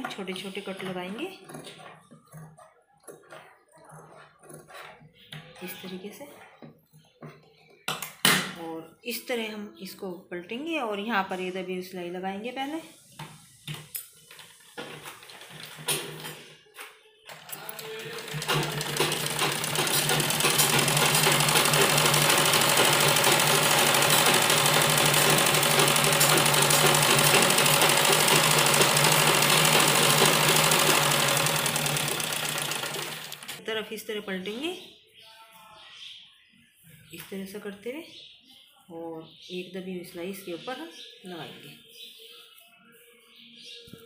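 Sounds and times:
sewing machine stitching: 17.3 - 33.6.

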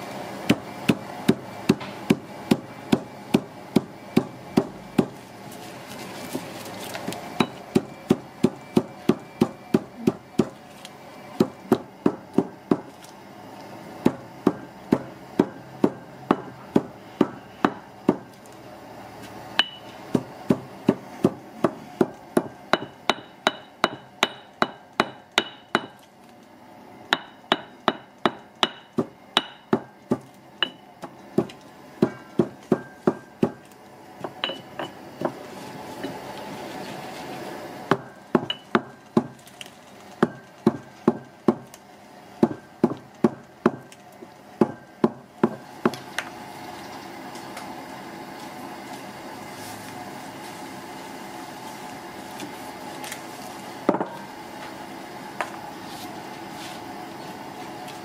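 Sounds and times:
pestle pounding in stone mortar: 0.5 - 5.2, 7.4 - 10.6, 11.4 - 13.0, 14.0 - 18.3, 19.6 - 26.0, 27.2 - 33.6, 37.9 - 39.4, 40.2 - 41.7, 42.4 - 43.9, 44.6 - 46.0.

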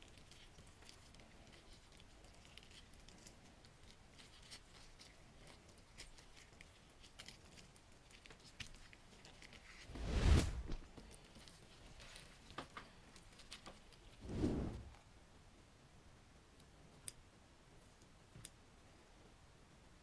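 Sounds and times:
loud rush of noise: 9.9 - 10.8.

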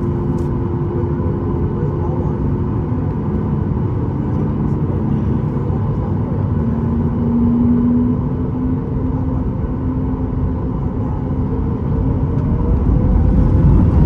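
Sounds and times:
jet engine rumble in cabin: 0.0 - 14.0
rising humming tone: 6.1 - 14.0.

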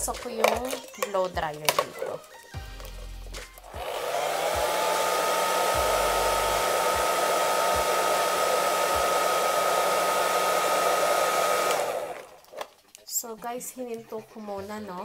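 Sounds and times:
hair dryer blowing: 3.6 - 12.6.

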